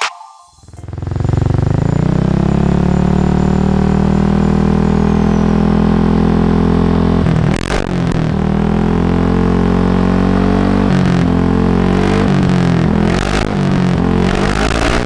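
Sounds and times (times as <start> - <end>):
scooter engine idling: 0.6 - 3.2.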